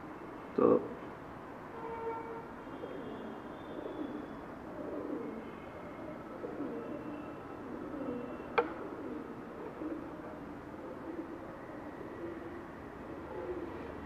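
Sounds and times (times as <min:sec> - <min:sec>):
bird calls: 0:02.7 - 0:10.2.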